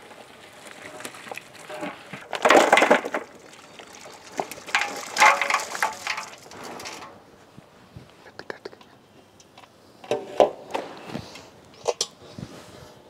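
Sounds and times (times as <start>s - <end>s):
pot clattering: 1.7s - 7.1s.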